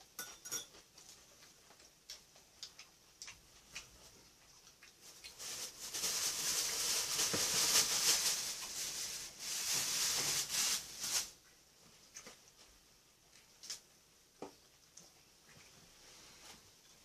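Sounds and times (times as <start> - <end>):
lettuce leaves rustling: 5.0 - 11.4
plastic bag crinkling: 5.0 - 11.4.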